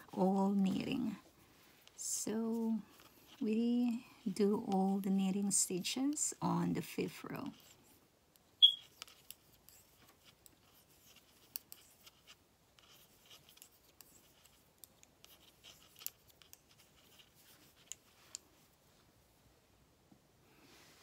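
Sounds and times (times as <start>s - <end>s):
knitting needles clicking: 14.8s - 18.4s.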